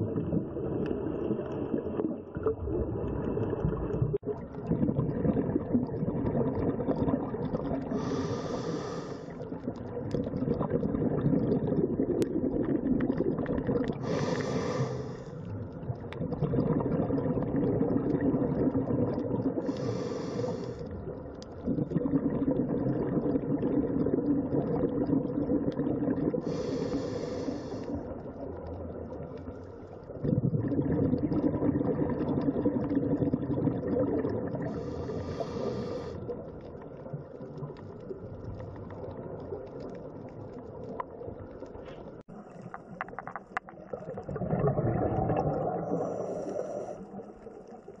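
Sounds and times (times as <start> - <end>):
exhaled air bubbling: 0.0 - 48.0
regulator inhalation hiss: 7.9 - 9.4, 14.0 - 15.4, 19.6 - 20.9, 26.4 - 28.0, 34.7 - 36.2.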